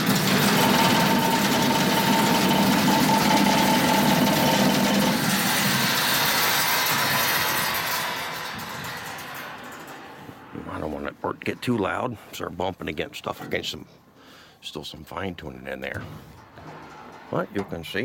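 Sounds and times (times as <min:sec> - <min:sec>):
blower fan running: 0:00.0 - 0:10.8.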